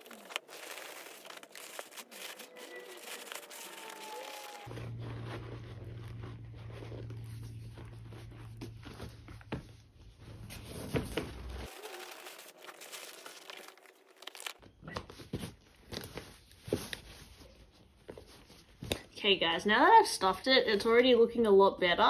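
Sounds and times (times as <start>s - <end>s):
tissue paper crinkling: 0.0s - 9.4s, 10.5s - 14.6s.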